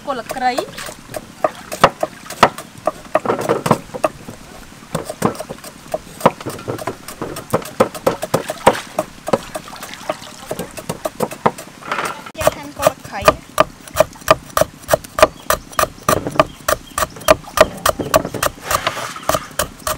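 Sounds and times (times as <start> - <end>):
cleavers chopping on wooden boards: 0.1 - 19.9
water sloshing in a basin: 5.1 - 11.7.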